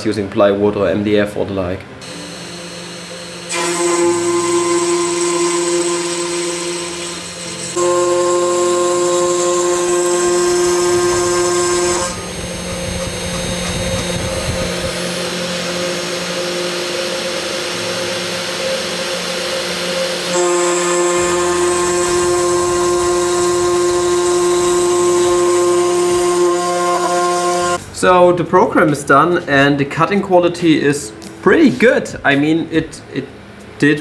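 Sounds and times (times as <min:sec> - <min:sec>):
cnc spindle whine: 0:02.0 - 0:27.8
cutting hiss: 0:02.0 - 0:27.8
rough noisy cutting: 0:02.0 - 0:27.8.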